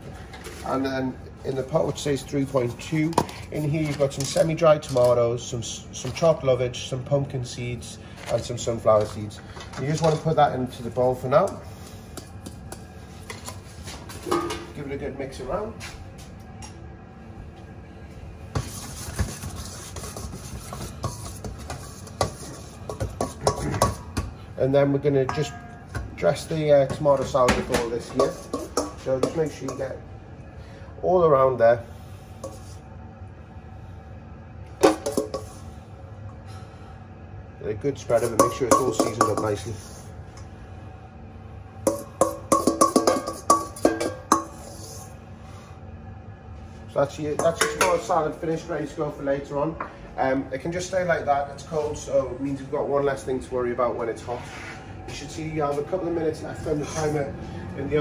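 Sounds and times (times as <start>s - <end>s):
spoon scraping metal bowl: 18.6s - 24.0s, 28.1s - 29.8s, 32.4s - 32.9s, 34.9s - 35.6s, 41.9s - 45.2s
hand mixing oily pesto: 18.6s - 24.2s, 26.9s - 30.0s
knocks on metal bowl: 41.9s - 44.5s.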